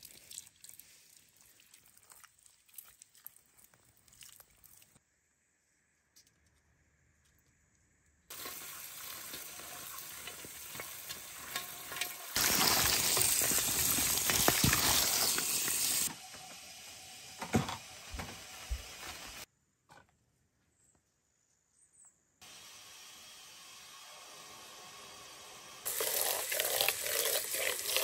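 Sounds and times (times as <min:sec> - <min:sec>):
water pouring into metal basin: 0:08.3 - 0:16.1, 0:25.9 - 0:28.0.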